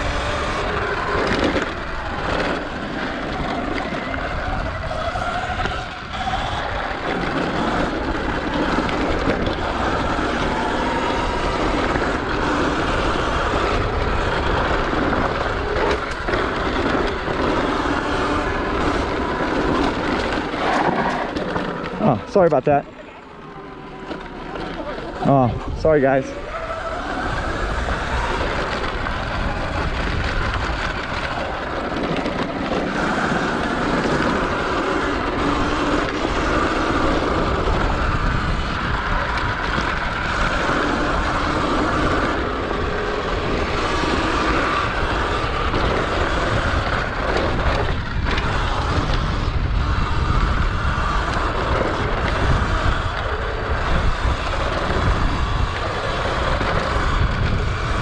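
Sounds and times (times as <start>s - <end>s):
electric dirt bike rumble: 0.0s - 58.0s
wind on microphone: 25.2s - 58.0s.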